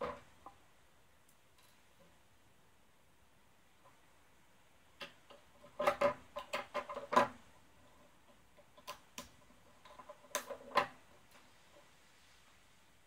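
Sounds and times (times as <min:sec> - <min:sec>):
plastic parts clicking on wood: 0:05.0 - 0:07.5, 0:08.2 - 0:11.4.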